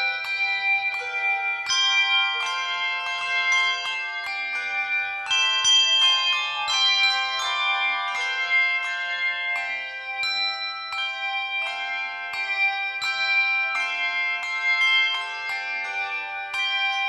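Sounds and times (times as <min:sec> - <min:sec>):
handbells ringing chords: 0:00.0 - 0:17.0.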